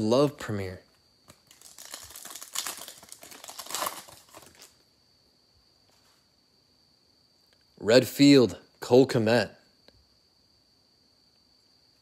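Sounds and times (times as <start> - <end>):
plastic wrapper crinkling: 1.3 - 4.8.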